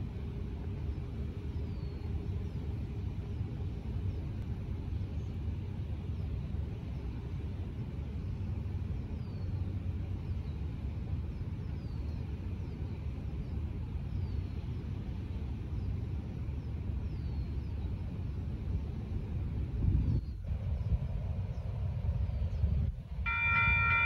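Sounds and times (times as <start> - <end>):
low outdoor rumble: 0.0 - 24.0
high chirps sliding downward: 23.3 - 24.0.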